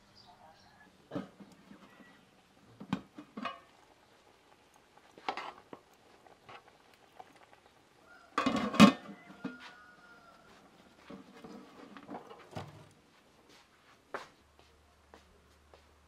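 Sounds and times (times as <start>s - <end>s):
cooking gear clattering: 2.7s - 7.7s, 8.3s - 9.5s.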